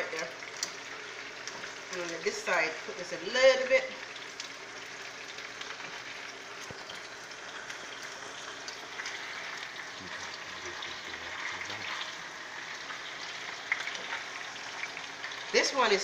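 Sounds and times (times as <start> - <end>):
fish frying in oil: 0.0 - 16.0.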